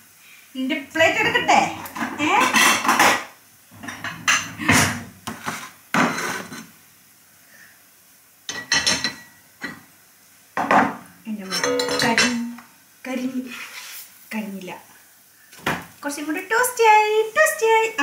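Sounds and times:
plates and cutlery clinking: 1.1s - 6.7s, 8.5s - 9.8s, 10.6s - 12.5s.

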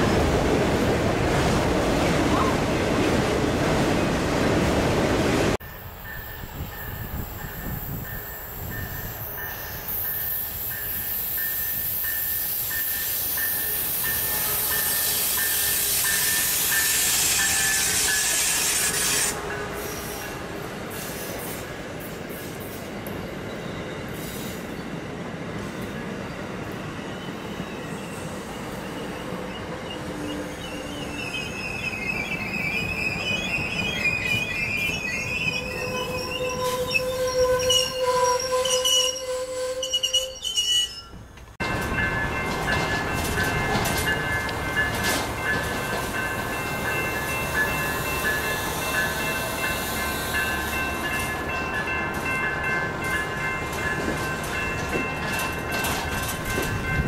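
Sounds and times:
train wheels squealing: 6.0s - 21.7s, 22.3s - 24.9s, 25.6s - 41.4s
passenger cars rolling: 41.1s - 57.0s.

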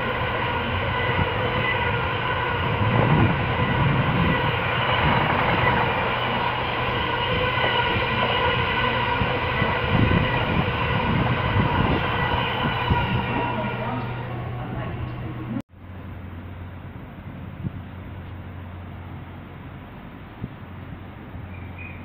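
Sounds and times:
train wheels rumbling on rail: 0.0s - 15.6s.

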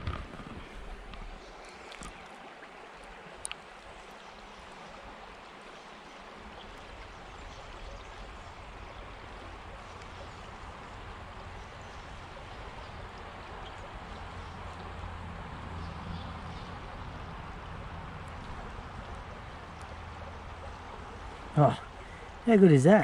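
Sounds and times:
river water trickling and gurgling: 0.0s - 23.0s.

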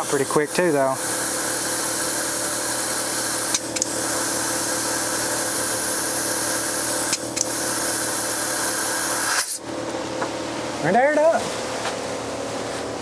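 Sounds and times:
air compressor running: 0.0s - 10.0s
air hissing into tire: 0.9s - 9.6s.

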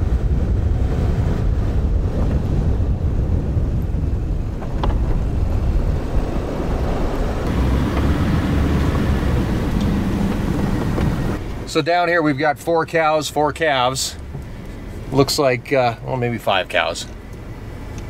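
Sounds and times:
pickup truck driving over snow: 0.0s - 18.0s.

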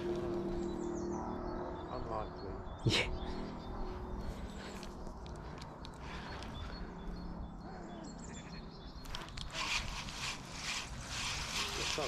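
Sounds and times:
faint bird chirps: 6.0s - 10.4s
scratchy noise: 9.5s - 12.0s.

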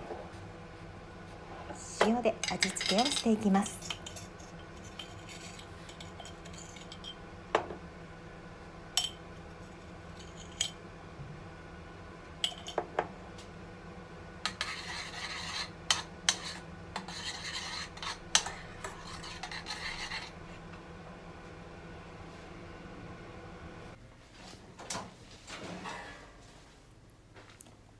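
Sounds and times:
spoon scraping: 2.4s - 7.2s, 14.5s - 20.4s.

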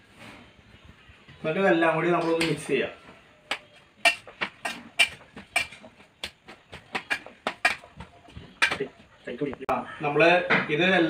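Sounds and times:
hands mixing vegetables in pot: 1.3s - 9.4s.

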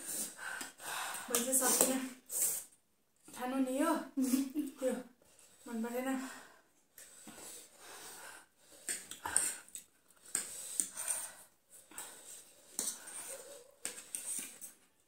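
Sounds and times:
sharp airy breaths through mouth: 0.0s - 2.8s, 6.3s - 14.6s.

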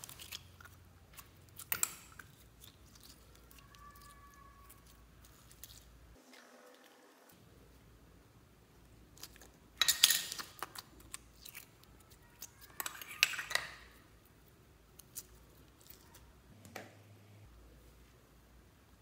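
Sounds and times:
sticky slime crackling: 0.0s - 6.0s.

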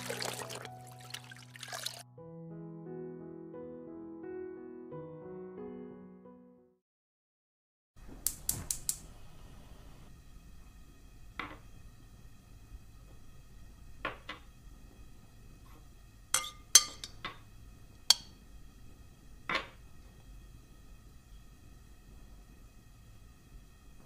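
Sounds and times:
bowl clinking on metal pot rim: 16.4s - 17.4s, 18.1s - 18.4s.

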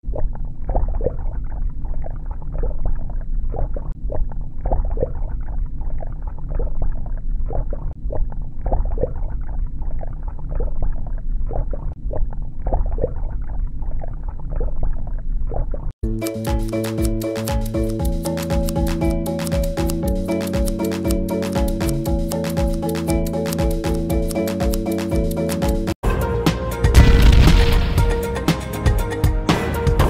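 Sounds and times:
bubbling pops: 0.0s - 15.9s.

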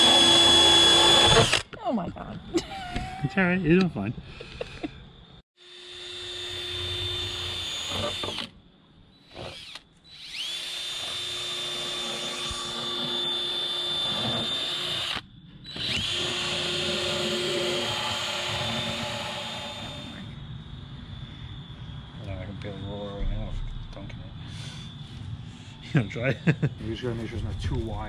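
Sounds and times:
cordless drill high whine: 0.0s - 1.6s, 5.6s - 20.4s.

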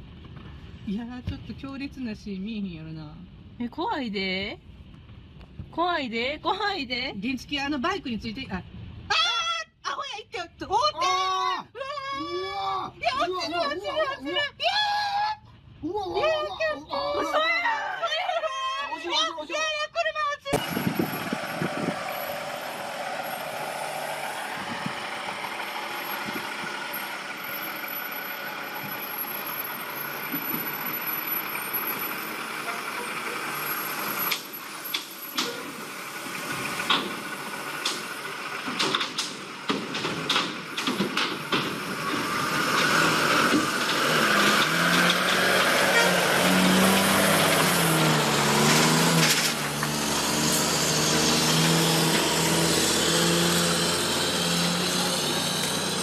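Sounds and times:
truck engine running: 20.5s - 56.0s
wheels clanking on metal plates: 24.5s - 56.0s.

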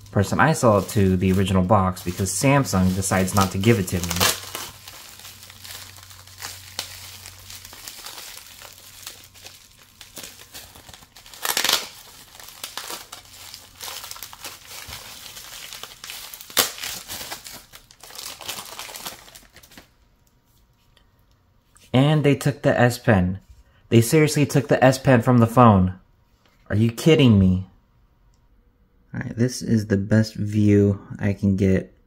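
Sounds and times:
bubble wrap and plastic crinkling: 0.0s - 20.9s.

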